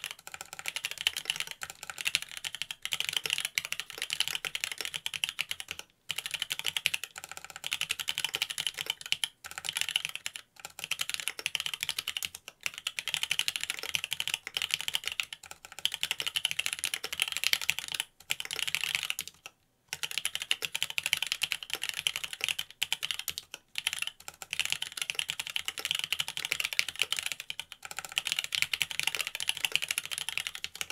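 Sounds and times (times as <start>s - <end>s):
fast typing on mechanical keyboard: 0.0s - 30.9s.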